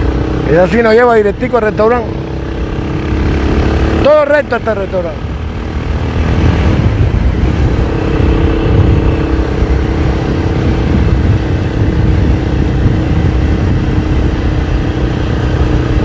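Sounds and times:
motorcycle engine running: 0.0 - 16.0
wind rumble on microphone: 5.7 - 16.0.

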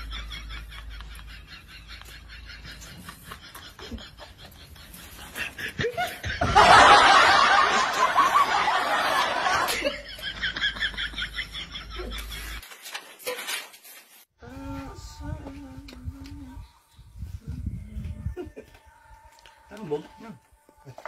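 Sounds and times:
snickering: 0.0 - 12.6.

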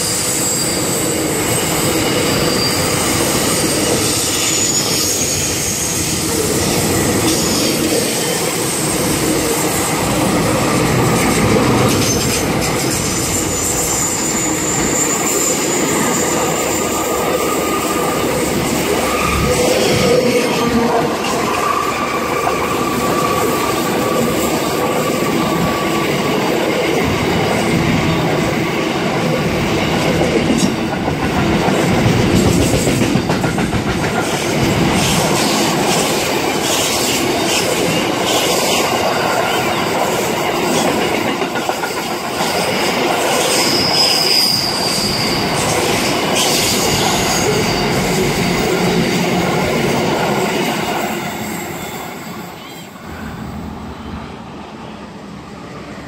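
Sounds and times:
wheels squealing: 0.0 - 9.8, 11.2 - 20.8, 43.4 - 48.9
freight train wheels on rails: 0.0 - 56.0.

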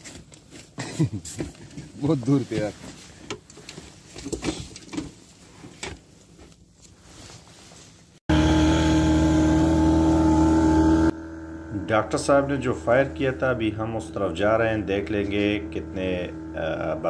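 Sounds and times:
clothing rustling through reeds: 1.9 - 8.2
boat motor running: 8.3 - 17.0.

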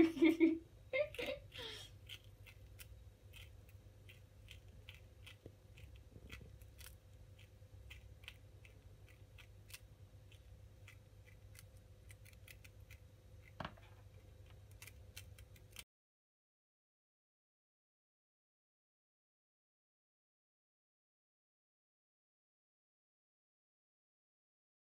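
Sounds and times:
faint steady hum: 0.0 - 15.8
prairie dog chewing food: 1.9 - 15.8.

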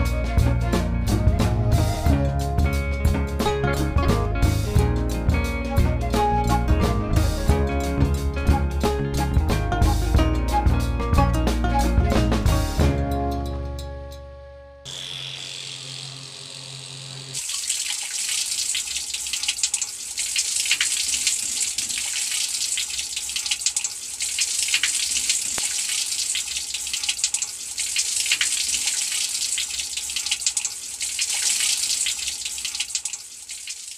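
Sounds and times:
electric water pump humming: 14.8 - 33.9
water splashing into tub: 17.4 - 33.9.

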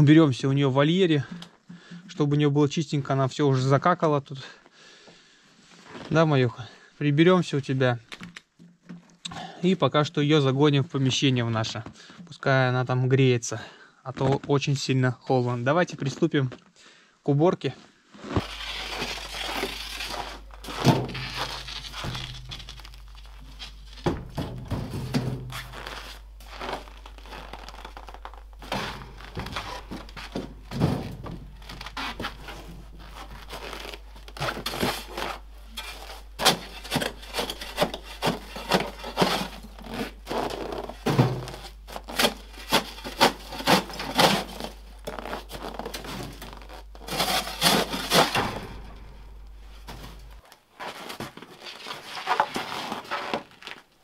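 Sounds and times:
ice cracking: 18.4 - 24.2
crowbar striking ice: 34.5 - 40.1.

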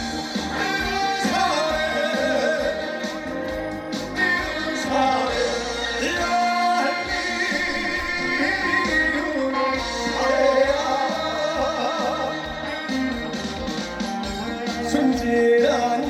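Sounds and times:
upbeat accompaniment with steady beat: 0.0 - 16.0
man singing into a microphone: 0.2 - 16.0.

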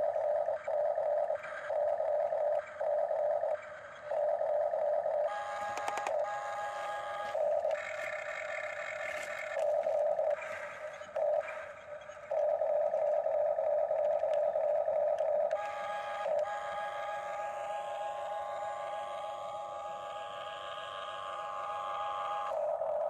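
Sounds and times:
toy gear motors whining: 0.0 - 23.0.

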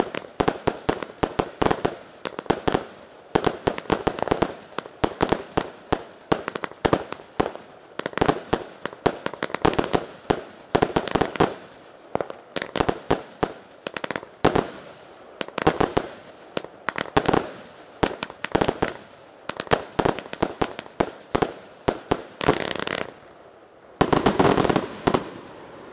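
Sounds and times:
fireworks rushing burst: 0.0 - 23.3, 24.0 - 25.9
fireworks bangs and cracks: 24.0 - 25.9.

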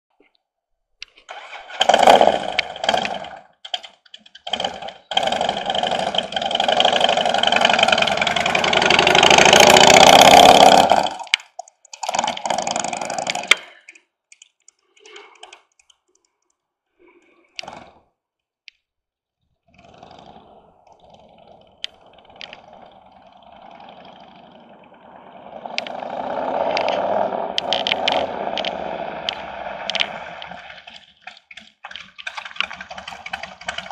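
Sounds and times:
motorcycle engine passing: 1.6 - 3.4, 4.5 - 11.3, 19.8 - 31.1.

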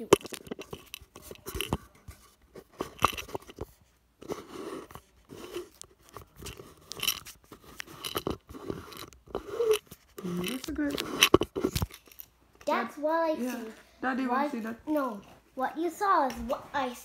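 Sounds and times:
phone handling scrapes and knocks: 0.1 - 12.2.

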